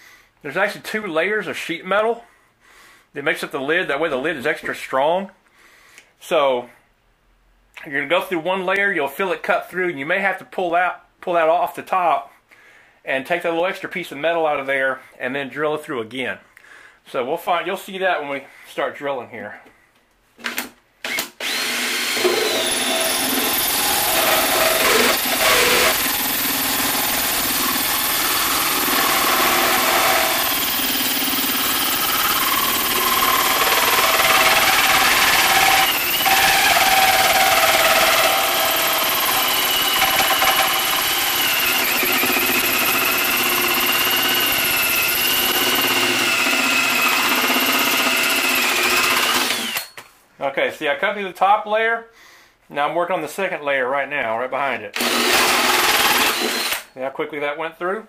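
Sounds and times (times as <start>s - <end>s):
hole saw cutting metal: 21.4s - 50.0s.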